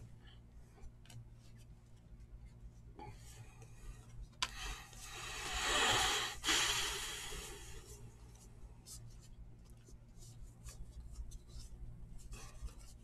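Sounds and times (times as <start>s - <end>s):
breathing close to microphone: 3.1s - 8.0s
cards being handled: 8.2s - 13.0s.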